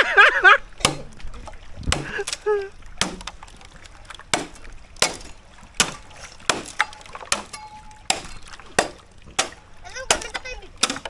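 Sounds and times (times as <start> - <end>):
machete chopping bamboo: 0.8 - 1.1, 1.9 - 2.4, 3.0 - 3.4, 4.3 - 11.0.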